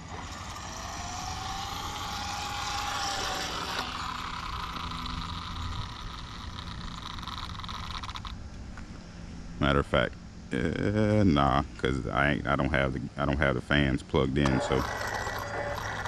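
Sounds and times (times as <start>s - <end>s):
rc car motor whining: 0.0s - 9.1s, 14.4s - 16.0s.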